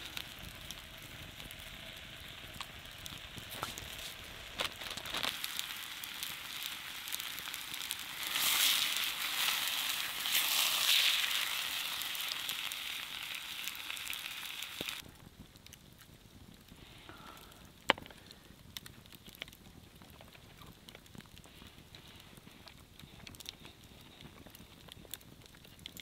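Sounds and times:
steak sizzling in a frying pan: 0:00.0 - 0:15.0
fire crackling: 0:00.0 - 0:26.0.

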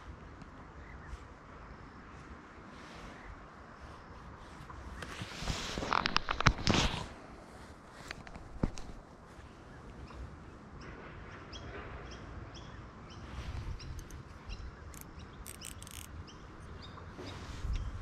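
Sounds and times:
small bird chirping: 0:11.5 - 0:18.0
sharp high clicks: 0:13.8 - 0:16.8.

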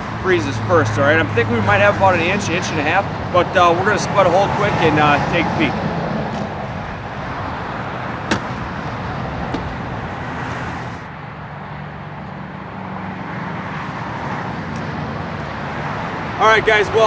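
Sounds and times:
highway traffic noise: 0:00.0 - 0:17.0
sharp knock: 0:08.3 - 0:08.7.

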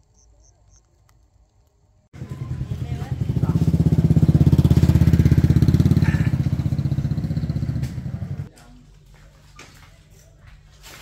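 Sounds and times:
small engine puttering: 0:02.2 - 0:08.5.

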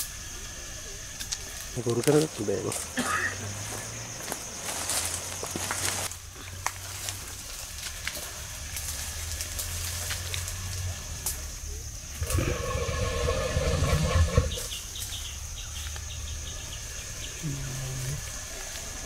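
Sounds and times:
twigs and leaves rustling: 0:01.2 - 0:11.6
elephant call: 0:12.1 - 0:15.0.

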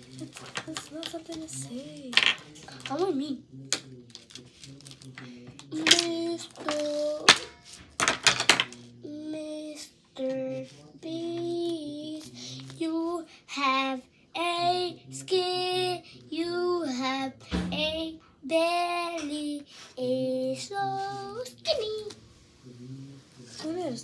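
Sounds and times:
child singing: 0:05.6 - 0:07.5, 0:09.0 - 0:22.2.

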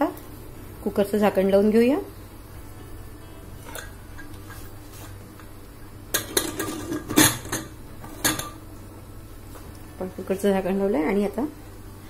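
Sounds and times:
metal pot lid clanking: 0:06.1 - 0:08.6.

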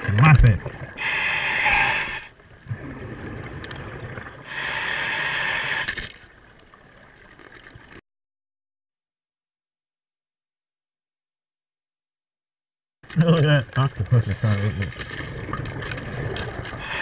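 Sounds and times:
low watery rumble: 0:00.0 - 0:04.7, 0:13.2 - 0:17.0
breath bubbling from scuba regulator: 0:00.9 - 0:06.2.

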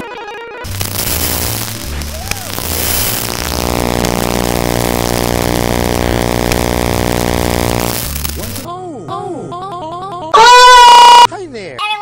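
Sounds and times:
harsh distorted buzzing drone: 0:00.7 - 0:08.7.

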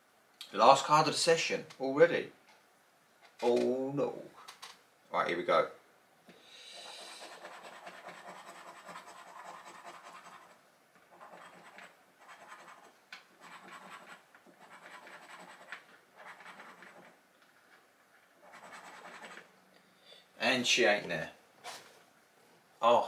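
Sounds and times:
scratchcard coating being scratched: 0:06.8 - 0:17.2, 0:18.4 - 0:19.5.

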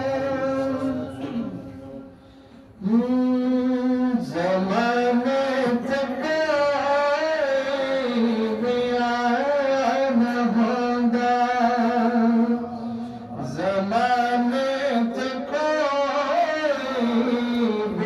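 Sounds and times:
man singing devotional song: 0:00.0 - 0:18.0.

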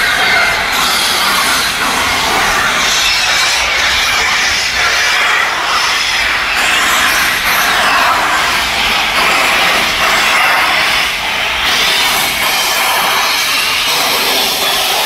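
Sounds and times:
steam locomotive hissing steam: 0:00.0 - 0:15.0.

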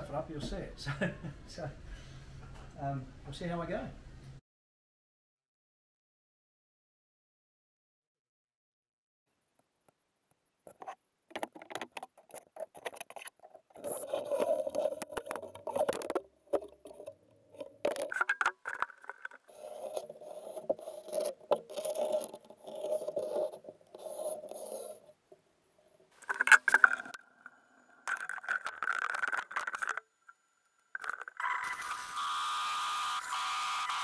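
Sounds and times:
scraping and rubbing strokes: 0:12.0 - 0:25.4.

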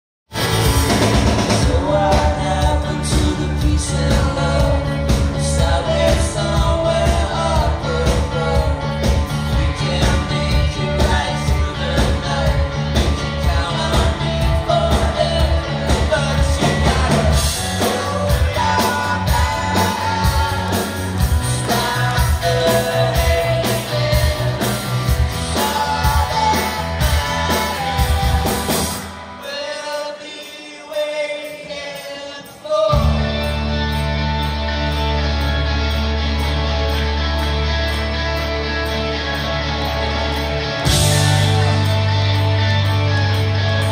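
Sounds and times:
bass guitar: 0:00.3 - 0:29.4, 0:32.9 - 0:43.9
electric guitar: 0:00.3 - 0:30.5, 0:32.8 - 0:43.9
drums: 0:00.3 - 0:43.9
person singing: 0:01.0 - 0:34.5.

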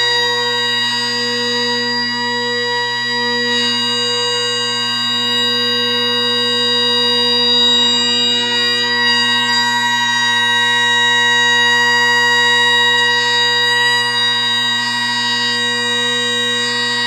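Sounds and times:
bagpipe chanter melody: 0:00.0 - 0:17.0
bagpipe drones: 0:00.0 - 0:17.0.

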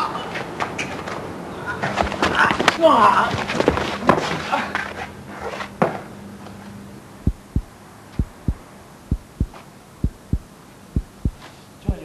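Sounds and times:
faint steady hum: 0:06.2 - 0:12.0
heartbeat thumps: 0:07.2 - 0:12.0.

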